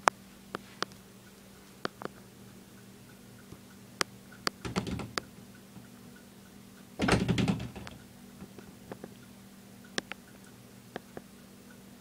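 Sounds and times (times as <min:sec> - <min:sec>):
ceiling fan humming: 0:00.0 - 0:12.0
rattling clatter of knocks: 0:04.6 - 0:05.2, 0:07.0 - 0:08.0.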